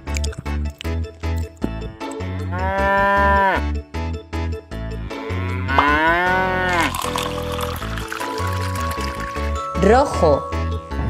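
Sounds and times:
background music with steady beat: 0.0 - 6.7
cow mooing: 2.4 - 3.6, 5.0 - 6.9.

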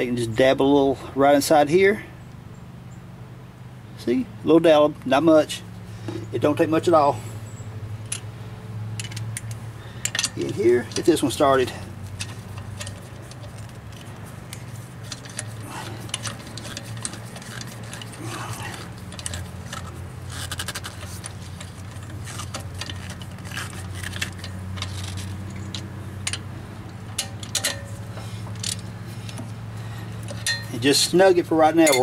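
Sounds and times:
steady low hum: 2.0 - 32.0
metallic clicks of lug nut spinning: 8.0 - 8.3, 8.9 - 29.5, 30.1 - 31.1, 31.8 - 32.0.

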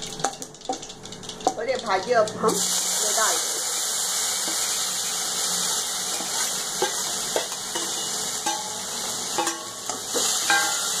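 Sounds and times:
vegetables sizzling in hot oil: 0.0 - 11.0
spoon clinking and scraping pan: 6.1 - 11.0.

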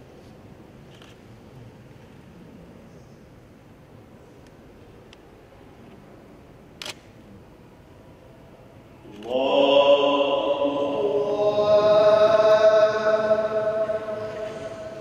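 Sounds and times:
man chanting melodically: 9.1 - 15.0.

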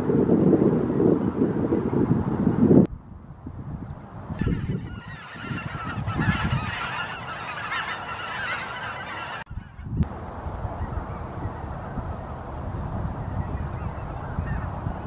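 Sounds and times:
geese calling in flight: 4.4 - 10.0, 13.7 - 14.8.

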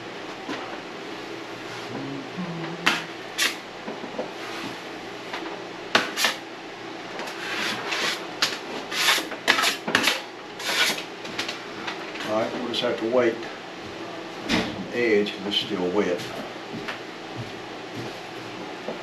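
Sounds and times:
knife scraping mud pan: 7.4 - 8.2, 8.9 - 11.0.

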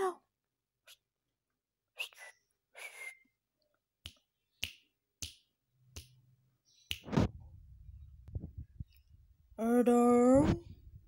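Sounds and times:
fingers snapping: 4.0 - 6.2, 6.8 - 7.2.

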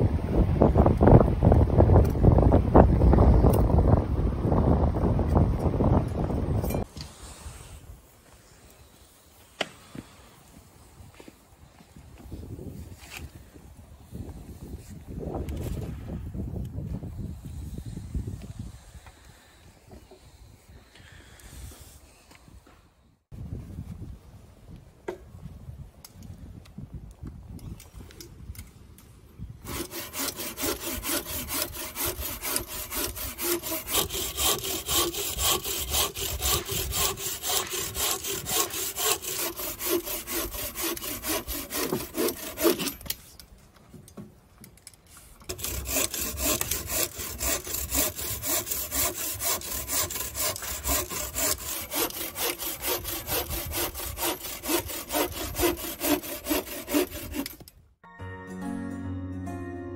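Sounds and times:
bow saw cutting log: 29.6 - 43.2, 45.5 - 57.7.

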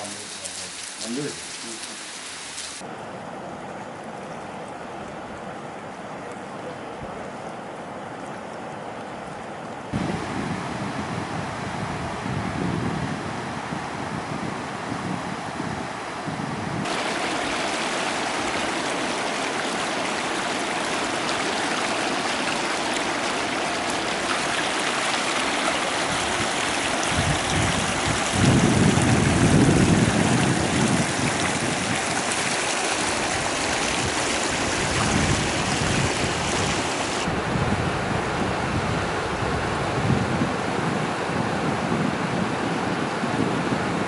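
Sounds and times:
wind rumble on microphone: 9.9 - 17.0, 25.7 - 44.0
river rushing over rock: 16.8 - 37.4.

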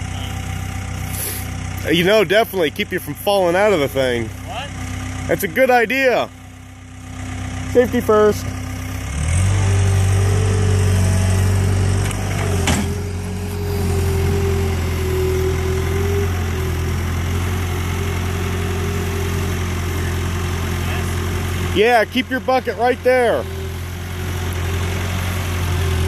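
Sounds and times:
diesel engine under load: 0.0 - 26.0.

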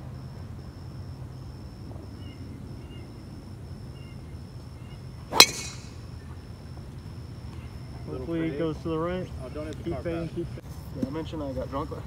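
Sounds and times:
pulsing insect trill: 0.0 - 10.6
golf club striking ball: 5.3 - 6.0.

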